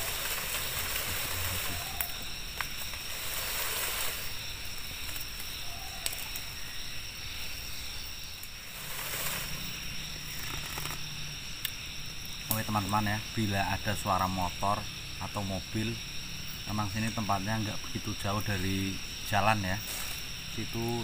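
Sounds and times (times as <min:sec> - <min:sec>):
insects chirring: 0:00.0 - 0:21.0
soft hiss: 0:00.0 - 0:21.0.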